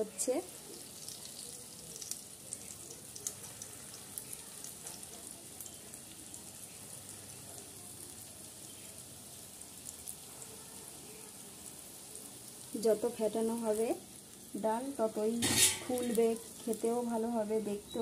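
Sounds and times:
fritters deep-frying in oil: 0.0s - 18.0s
oil crackles and pops: 0.3s - 10.4s, 15.2s - 17.1s.

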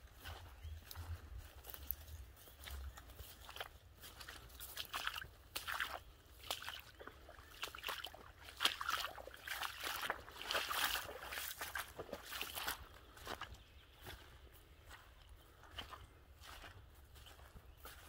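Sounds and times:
footsteps splashing through mud: 0.1s - 18.0s
dogs running through wet grass: 0.2s - 14.3s.

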